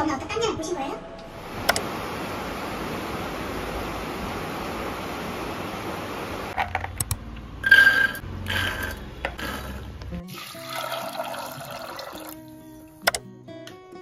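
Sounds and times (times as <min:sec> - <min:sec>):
clicks: 0:01.2 - 0:01.9, 0:06.7 - 0:07.5, 0:13.0 - 0:13.2
background music with plucked guitar: 0:09.9 - 0:14.0.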